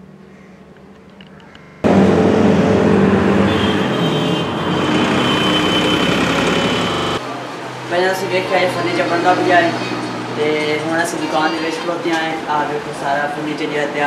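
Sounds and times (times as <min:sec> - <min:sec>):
road traffic noise: 0:00.0 - 0:14.0
thin high whine: 0:01.8 - 0:07.2.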